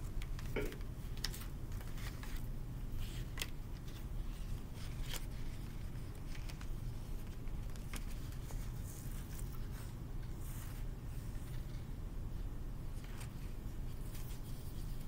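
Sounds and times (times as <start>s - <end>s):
paper crackling and rustling: 0.0s - 11.9s, 13.0s - 15.0s.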